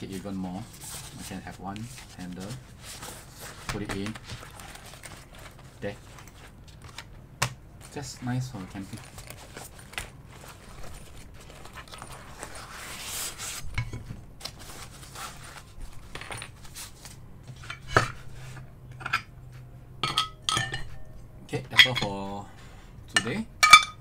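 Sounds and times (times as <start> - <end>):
nylon case rustling: 0.3 - 7.1, 7.8 - 13.6
cast iron pans knocking and clinking: 20.0 - 21.0, 23.2 - 24.0.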